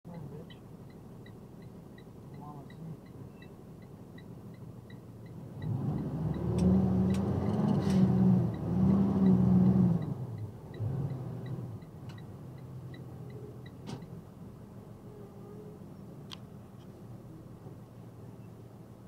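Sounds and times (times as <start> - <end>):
vehicle engine accelerating: 5.4 - 13.7.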